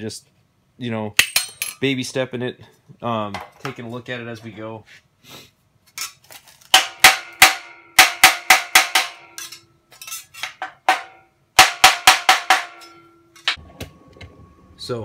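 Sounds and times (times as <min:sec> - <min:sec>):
metal sheet ringing: 0:10.8 - 0:13.6.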